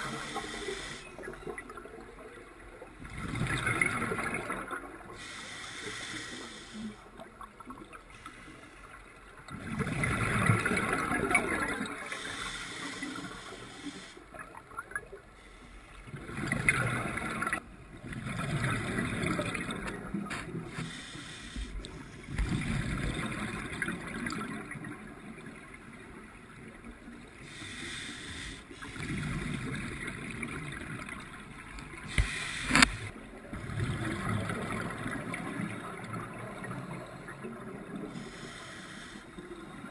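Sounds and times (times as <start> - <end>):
air bubbles gurgling underwater: 3.0 - 5.2, 9.5 - 12.1, 22.3 - 25.7, 33.4 - 38.2.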